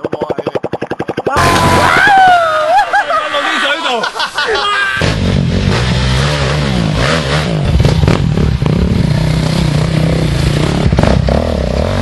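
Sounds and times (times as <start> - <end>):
bikes knocking on rock: 0.0 - 2.0
dirt bike engines revving: 0.0 - 12.0.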